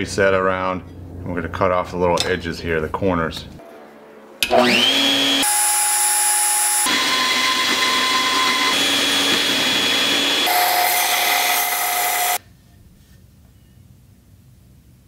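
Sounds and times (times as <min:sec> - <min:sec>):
band saw cutting steel: 0:03.6 - 0:12.4
belt sander grinding steel: 0:04.4 - 0:12.4.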